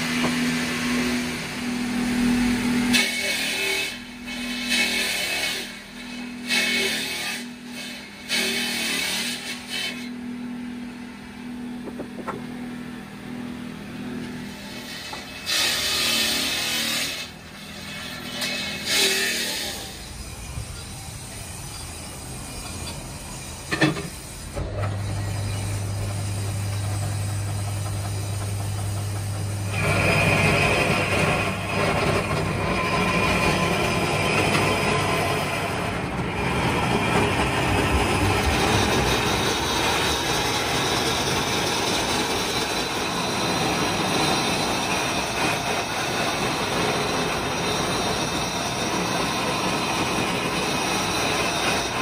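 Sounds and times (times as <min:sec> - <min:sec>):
lathe motor humming: 0:00.0 - 0:06.8, 0:19.9 - 0:52.0
lathe tool grinding stone: 0:00.0 - 0:10.4, 0:14.4 - 0:52.0.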